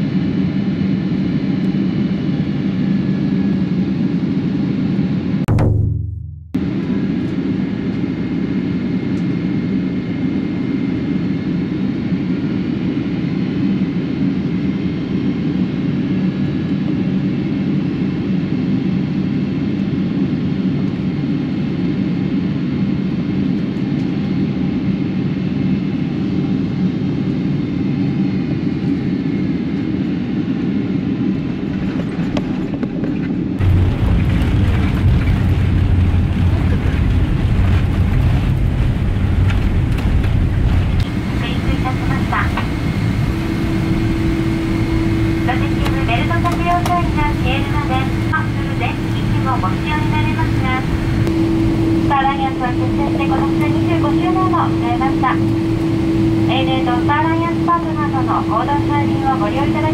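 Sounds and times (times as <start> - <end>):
airplane engine roar in cabin: 0.0 - 5.8, 6.6 - 59.9
faint high whine: 41.0 - 59.9.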